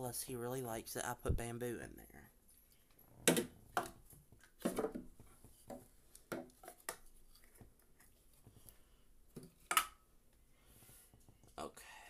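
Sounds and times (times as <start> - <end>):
bamboo pieces knocking: 3.3 - 7.6.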